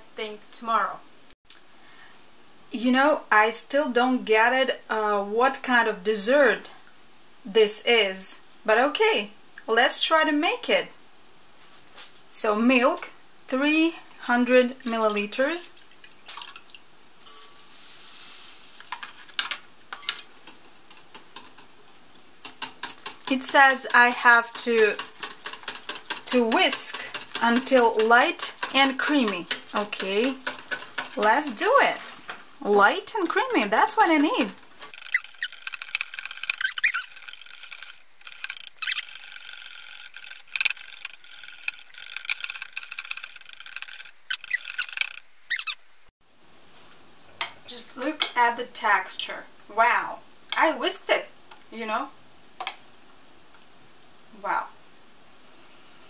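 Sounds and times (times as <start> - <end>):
wire whisk clinking on glass: 17.2 - 17.6
powder pouring rustle: 17.5 - 19.4
whisk beating in glass bowl: 22.4 - 32.2, 33.1 - 38.5.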